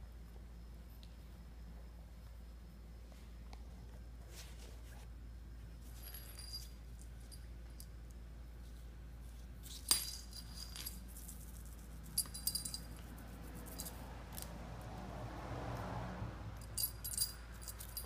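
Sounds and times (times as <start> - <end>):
cat toy bell jingling: 10.0 - 14.0, 16.6 - 18.0.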